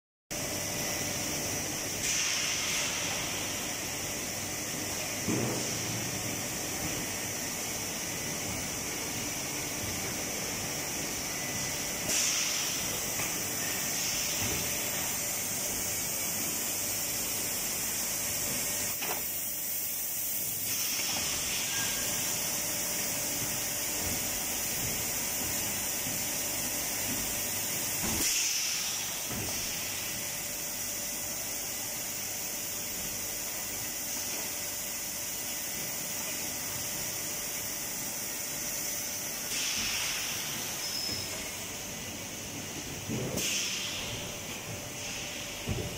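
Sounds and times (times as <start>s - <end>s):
compressed air hissing: 12.0s - 17.9s, 39.4s - 41.6s.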